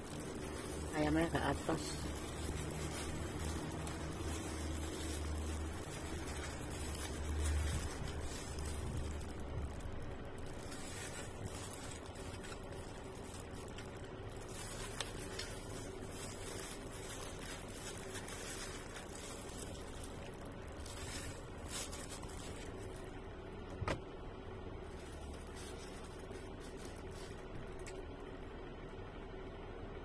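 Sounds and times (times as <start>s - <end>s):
plastic glove crinkling: 0.0s - 24.0s, 24.7s - 28.6s.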